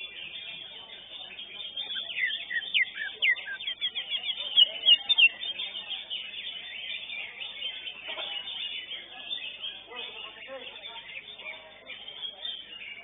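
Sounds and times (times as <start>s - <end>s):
bird chirping and whistling: 1.6s - 5.6s.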